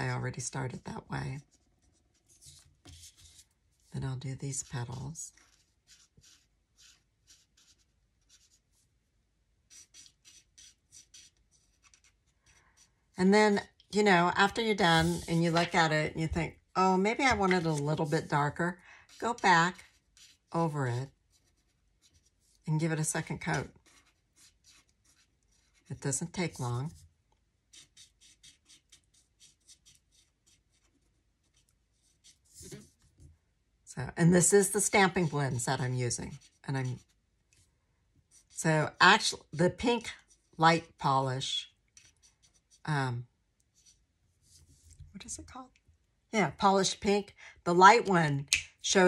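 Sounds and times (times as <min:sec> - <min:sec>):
marker scratching on paper: 0:01.5 - 0:03.9, 0:04.5 - 0:08.9, 0:09.6 - 0:12.9, 0:14.4 - 0:16.4, 0:17.1 - 0:27.0, 0:27.7 - 0:33.2, 0:34.4 - 0:37.2, 0:38.3 - 0:41.0, 0:42.0 - 0:43.0, 0:43.7 - 0:45.0.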